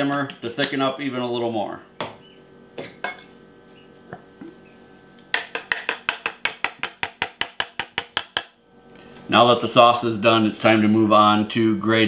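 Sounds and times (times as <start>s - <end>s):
plastic cup tapping on saucepan rim: 5.3s - 8.5s.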